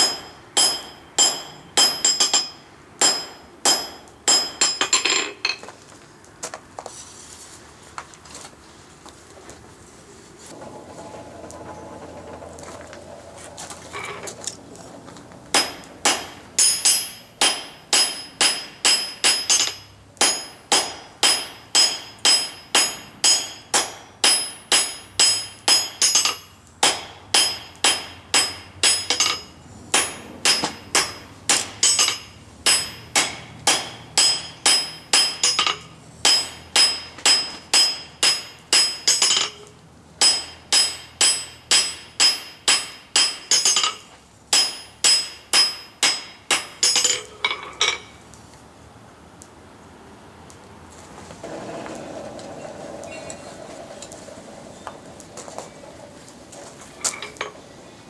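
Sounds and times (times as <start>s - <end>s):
hammer striking hot steel on anvil: 0.0s - 5.6s, 15.5s - 48.1s.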